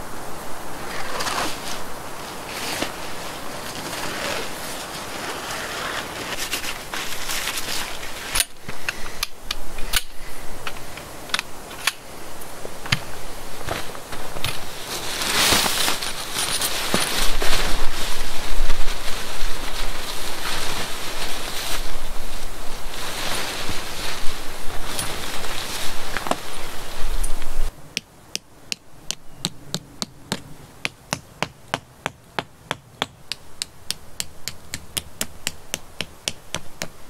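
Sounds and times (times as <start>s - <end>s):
tent fabric rustling: 0.6s - 8.8s, 9.8s - 27.7s.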